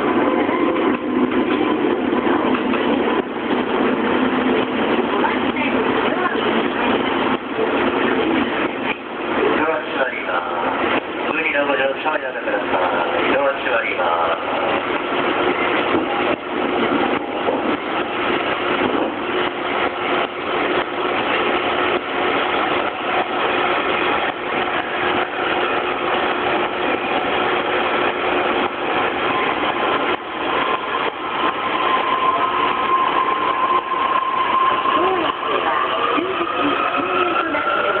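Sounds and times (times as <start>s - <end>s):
steady rumble: 0.0s - 38.0s
train wheels knocking on rails: 14.2s - 35.4s.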